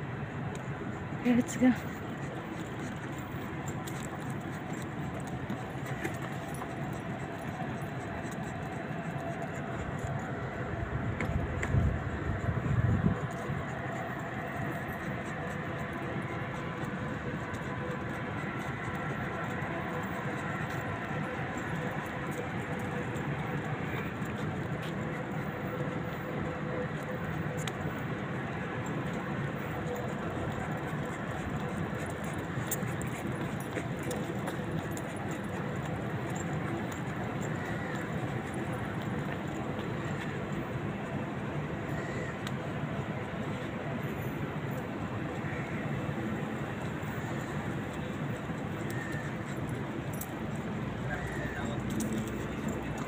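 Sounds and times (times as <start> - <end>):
city background noise: 0.0 - 53.0
low traffic rumble: 0.0 - 53.0
metallic jingling and clicking: 1.4 - 10.4, 28.6 - 40.5, 47.0 - 53.0.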